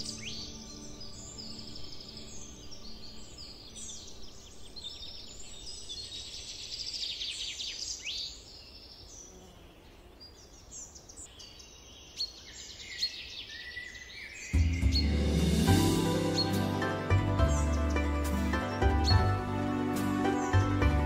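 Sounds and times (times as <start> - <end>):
songbirds chirping and trilling: 0.0 - 21.0.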